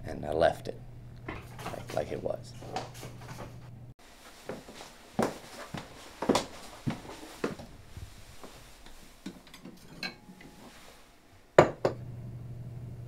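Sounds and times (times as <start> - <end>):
steady low hum: 0.0 - 13.0
dishes clinking and knocking: 9.3 - 10.5, 11.6 - 12.0.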